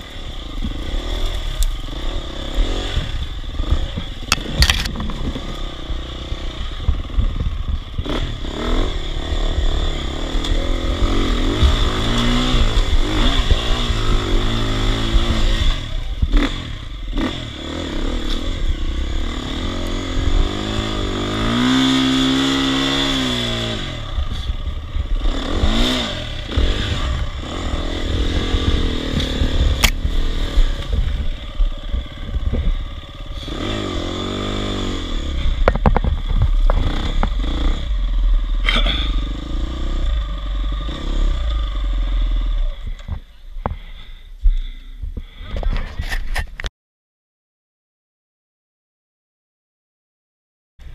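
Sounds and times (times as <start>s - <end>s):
dirt bike engine revving: 0.0s - 43.0s
knocks and rattles: 3.9s - 5.6s, 35.6s - 37.4s.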